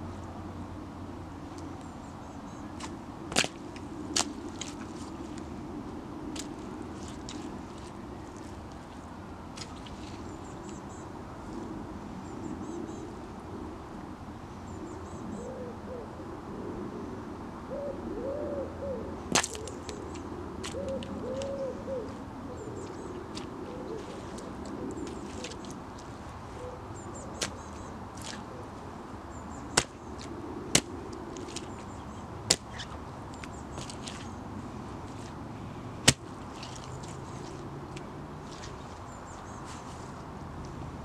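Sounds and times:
bird calling low: 14.7 - 16.2, 17.7 - 20.1, 20.7 - 25.8, 26.5 - 30.1
small birds chirping: 19.6 - 30.2.

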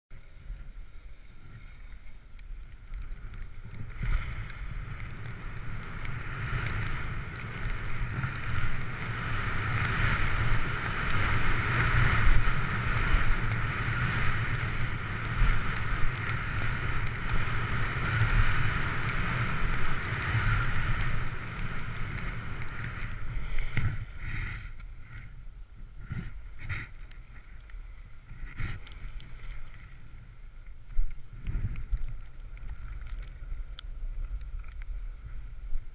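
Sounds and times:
wind rumbling on microphone: 0.1 - 35.9
skis scraping over snow: 0.2 - 25.2.

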